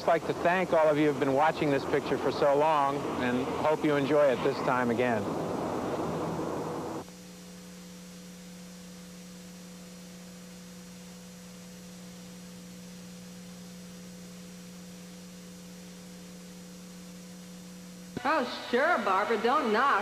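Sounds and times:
outdoor noise: 0.0 - 7.2
faint steady tones: 0.0 - 20.0
low electrical mains hum: 0.0 - 20.0.

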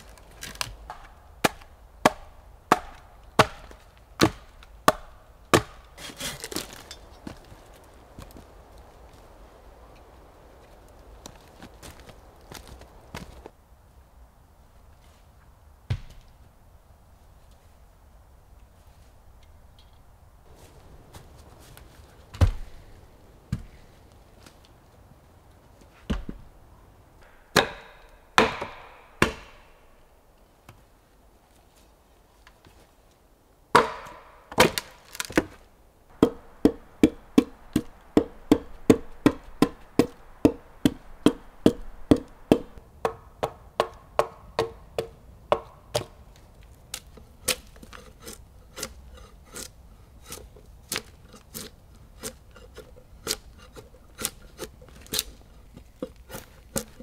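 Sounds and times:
axe chopping wood: 0.4 - 6.9, 27.2 - 29.7, 33.7 - 35.6, 36.2 - 46.2, 47.0 - 57.0.

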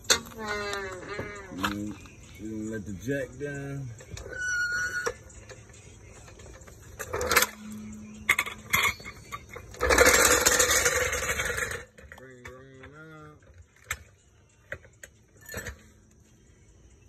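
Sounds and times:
car jack clanking: 0.0 - 2.0, 4.0 - 14.1
car jack squeaking: 0.0 - 16.0.

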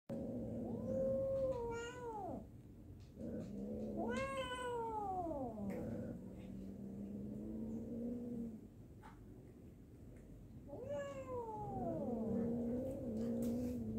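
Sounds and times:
cat meowing: 0.6 - 2.4, 3.9 - 5.7, 10.7 - 12.5.

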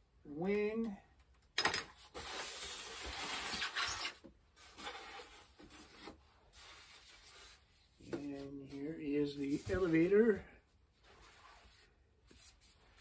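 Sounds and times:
styrofoam packaging rustling: 2.0 - 7.5.

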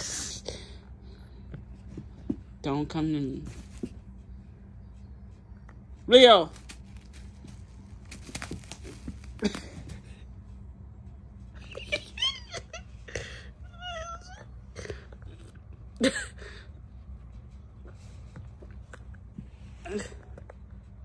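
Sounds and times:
knocks and scuffles: 1.5 - 2.6, 3.4 - 4.2, 6.5 - 10.1.

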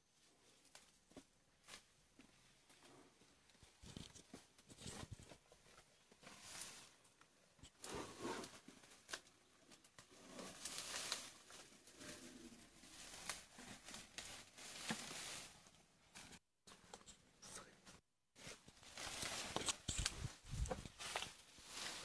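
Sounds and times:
leaves and stems rustling: 8.7 - 16.4, 18.4 - 22.0.

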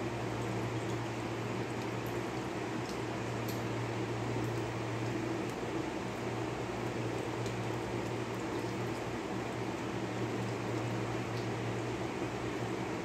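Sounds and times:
low mechanical hum: 0.0 - 13.0
faint light ticks: 2.8 - 3.7.

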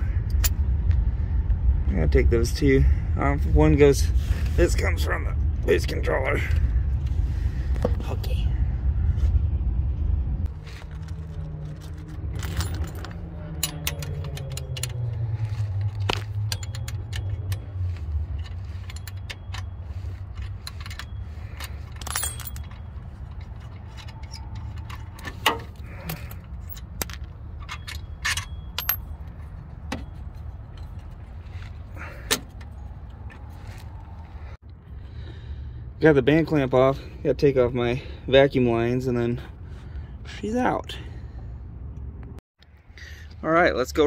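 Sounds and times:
low engine-like rumble: 0.0 - 44.0
metal hardware clinking: 10.8 - 33.5.

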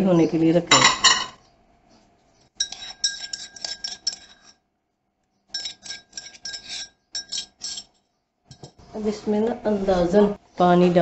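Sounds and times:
ceramic bowls clinking on steel pot: 0.7 - 1.4, 2.6 - 4.6, 5.5 - 7.9.

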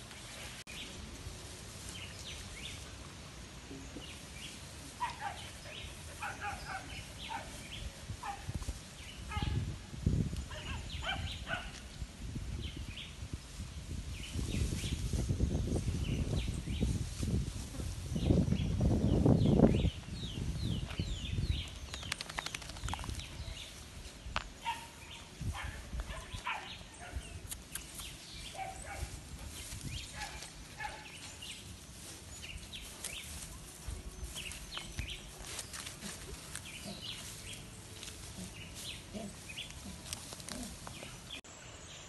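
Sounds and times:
small birds chirping: 0.0 - 9.6, 10.2 - 11.9, 14.2 - 42.0
rustling and handling noise: 27.6 - 41.4.

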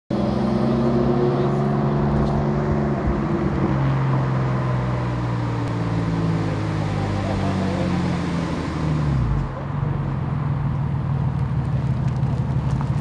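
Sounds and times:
car engine idling: 4.7 - 13.0.

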